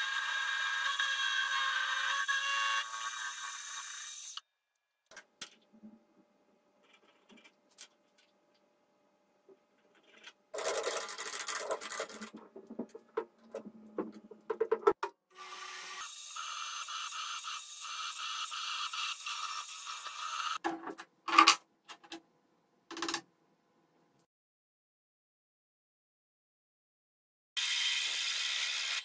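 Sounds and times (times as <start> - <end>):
drill running steadily: 0.0 - 4.4, 15.4 - 20.6, 27.6 - 29.0.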